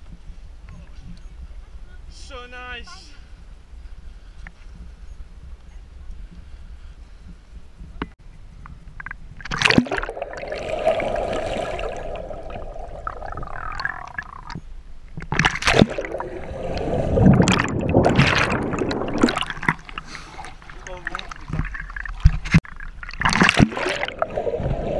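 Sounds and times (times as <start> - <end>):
splash into water: 9.4 - 14.6, 15.3 - 24.9
underwater gurgling and bubbling: 9.4 - 14.6, 15.3 - 24.9.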